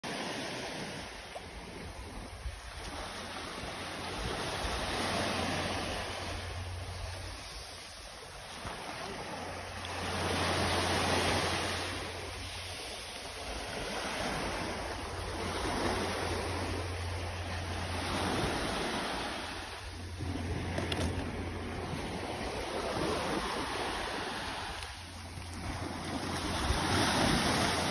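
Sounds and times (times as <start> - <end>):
small waves breaking on beach: 0.0 - 27.9
low rumble: 14.7 - 24.2.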